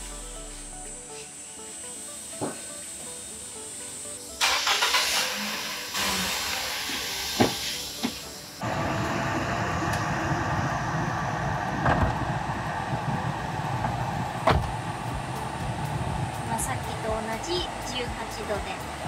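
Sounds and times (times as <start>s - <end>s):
air conditioning blower rushing: 4.5s - 17.1s.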